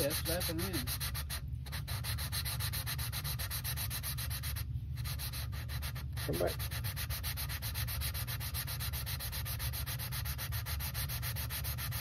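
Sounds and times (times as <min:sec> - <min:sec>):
valve lapping grinding rasp: 0:00.0 - 0:04.5.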